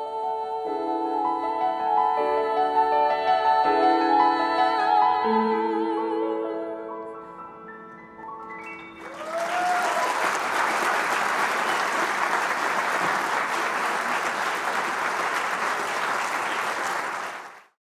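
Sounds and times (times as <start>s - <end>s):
audience applauding: 8.4s - 17.8s.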